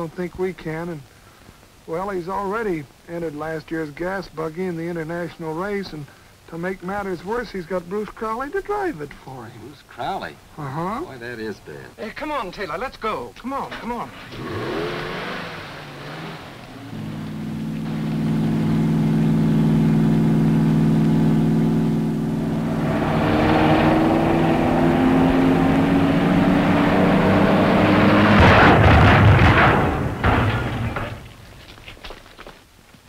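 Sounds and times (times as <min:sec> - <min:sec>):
car crashing into barrier: 0:13.7 - 0:17.2, 0:26.9 - 0:31.4
car engine revving: 0:13.7 - 0:31.0
clattering knocks: 0:28.1 - 0:31.6.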